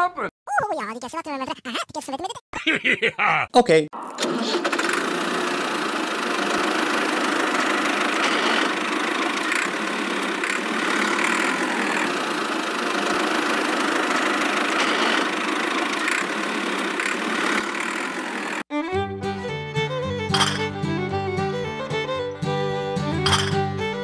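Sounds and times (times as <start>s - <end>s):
model tractor motor droning: 4.0s - 18.7s.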